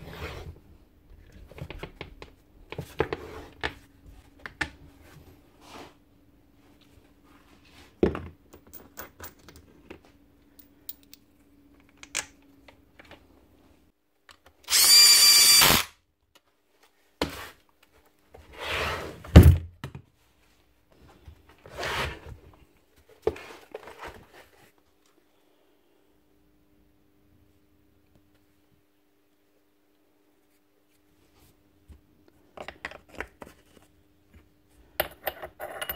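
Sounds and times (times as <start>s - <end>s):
power drill running: 14.7s - 15.9s.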